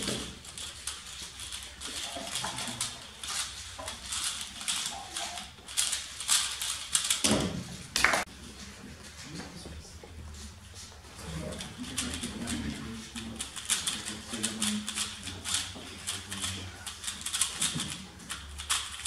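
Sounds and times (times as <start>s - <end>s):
speed cube plastic clicks: 16.9s - 19.0s.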